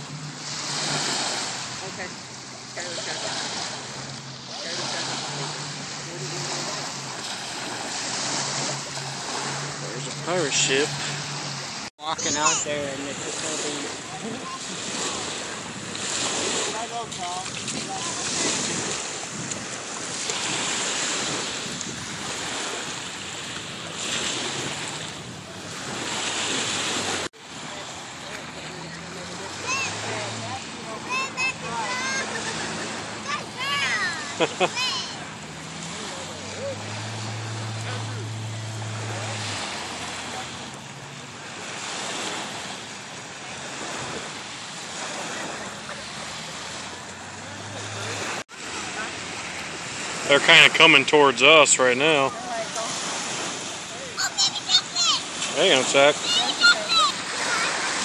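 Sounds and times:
small waves washing on shore: 0:00.0 - 0:58.0
wind buffeting microphone: 0:14.1 - 0:26.1.

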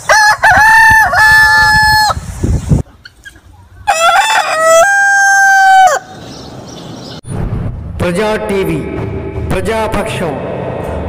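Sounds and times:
rooster crowing: 0:00.0 - 0:02.2, 0:03.8 - 0:06.2.

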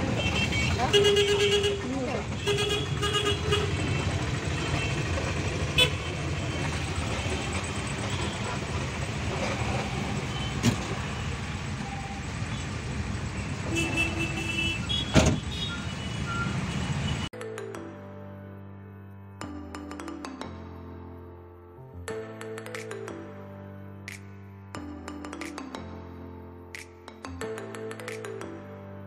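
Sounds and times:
vehicle horns honking: 0:00.0 - 0:09.0, 0:13.4 - 0:17.3
bus engine and road noise: 0:00.0 - 0:17.3.

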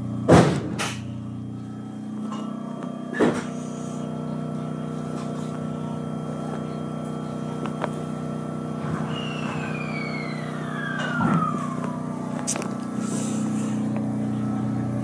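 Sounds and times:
electric train humming: 0:00.0 - 0:15.0
high whine falling in pitch: 0:01.1 - 0:15.0.

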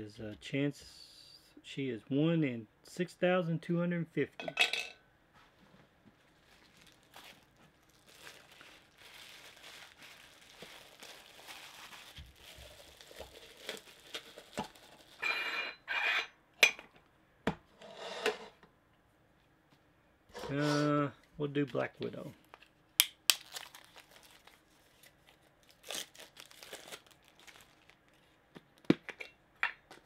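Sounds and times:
plastic bag crinkling: 0:06.2 - 0:15.2, 0:23.3 - 0:28.3.

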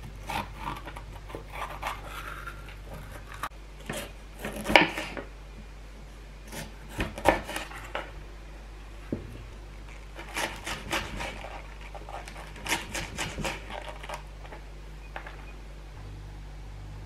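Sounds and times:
low hum: 0:07.6 - 0:17.0
knife slicing on wooden board: 0:10.2 - 0:14.2.

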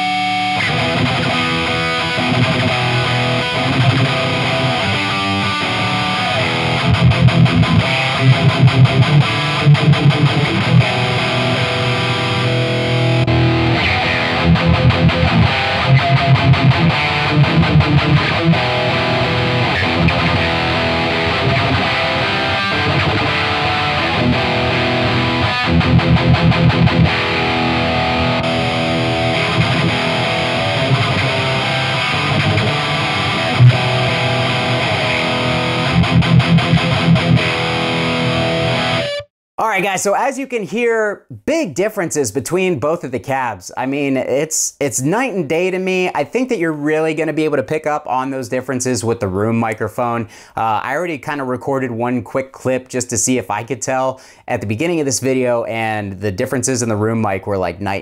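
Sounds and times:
distorted electric guitar: 0:00.0 - 0:40.1.

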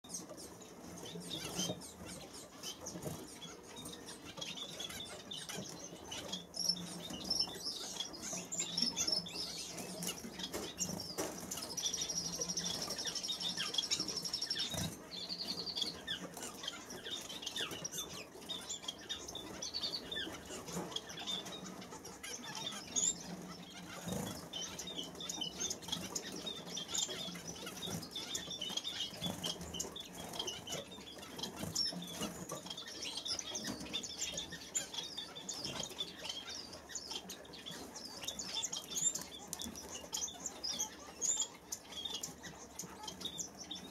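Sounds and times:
buzzy bird trill: 0:00.1 - 0:43.9
finches chirping: 0:00.1 - 0:43.9
wing flutters and taps in cage: 0:09.8 - 0:15.1, 0:38.5 - 0:40.2.

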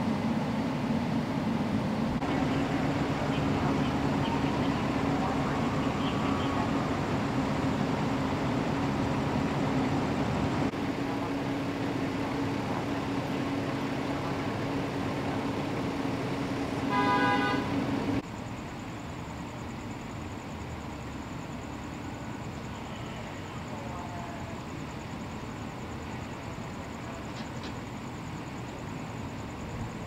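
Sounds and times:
fire engines idling: 0:00.0 - 0:30.0
vehicle horn beep: 0:16.8 - 0:17.8.

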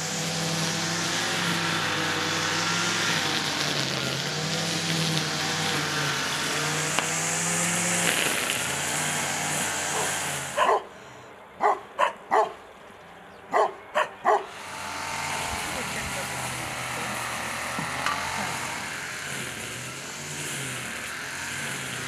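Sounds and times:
brush cutter engine revving: 0:00.0 - 0:12.4, 0:13.6 - 0:22.0
dog barking: 0:10.0 - 0:10.9, 0:11.6 - 0:12.6, 0:13.5 - 0:14.5.

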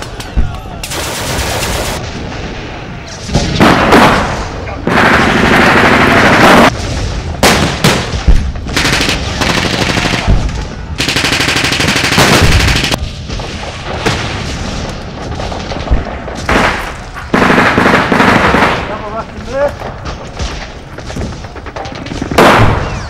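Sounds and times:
rifle shots: 0:20.4 - 0:23.0.

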